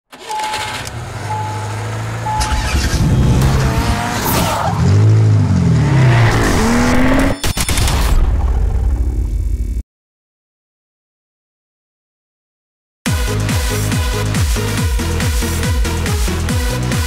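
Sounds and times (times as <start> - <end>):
car engines revving: 0.1 - 7.4
short high beeps: 0.3 - 1.7, 2.3 - 2.9.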